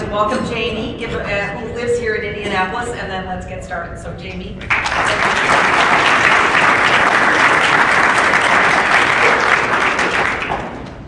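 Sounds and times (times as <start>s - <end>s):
audience applause: 4.7s - 10.9s.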